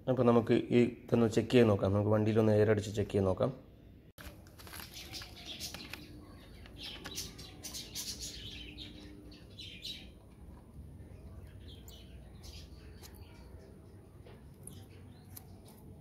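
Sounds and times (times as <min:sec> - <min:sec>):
small birds chirping: 0:04.3 - 0:16.0.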